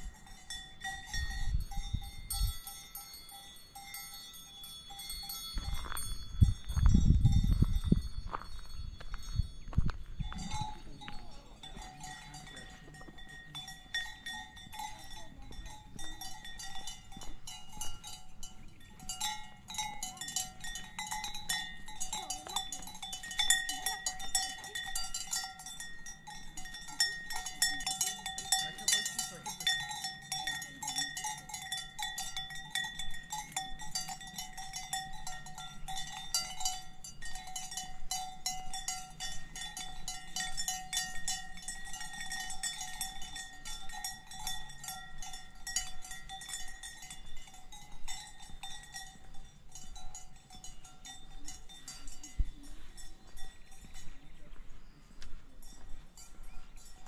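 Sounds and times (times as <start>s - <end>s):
cowbells clanking: 0.0s - 57.0s.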